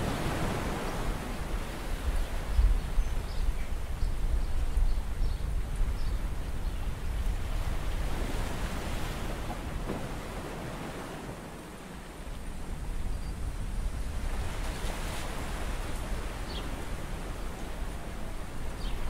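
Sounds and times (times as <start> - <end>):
seawater sloshing: 8.1 - 11.6.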